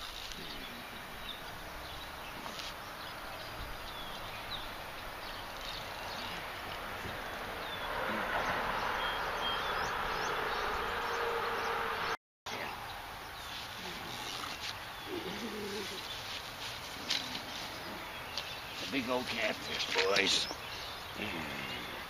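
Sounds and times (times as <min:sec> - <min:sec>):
high bird chirps: 0:08.8 - 0:11.9.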